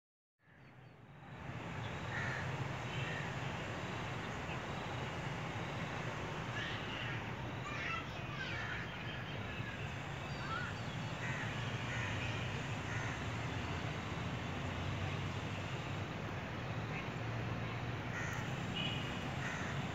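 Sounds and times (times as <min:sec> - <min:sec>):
outdoor background hum: 0:00.6 - 0:19.9
crow-like bird calls: 0:02.0 - 0:03.4, 0:10.5 - 0:13.8, 0:18.1 - 0:19.9.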